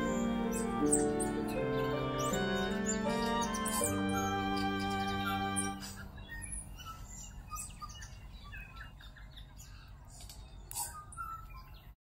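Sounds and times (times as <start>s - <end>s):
held musical chord: 0.0s - 6.4s
birds chirping and tweeting: 0.0s - 12.0s.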